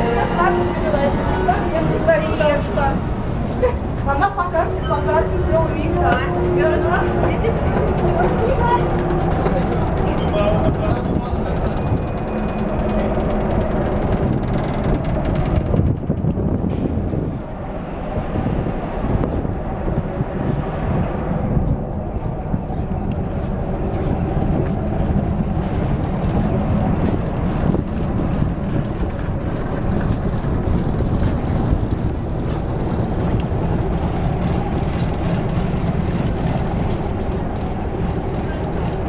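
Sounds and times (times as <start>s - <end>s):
ship engines rumbling: 0.0s - 39.0s.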